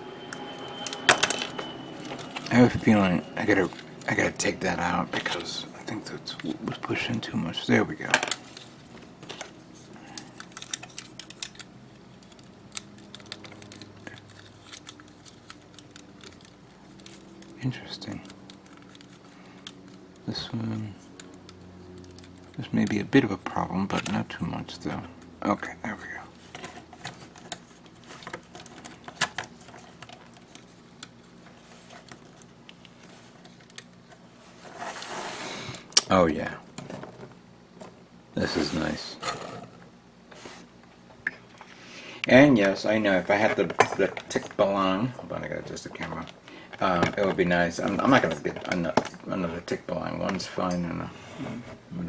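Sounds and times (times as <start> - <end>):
faint steady hum: 0.0 - 52.0
plastic parts clicking: 10.1 - 20.3.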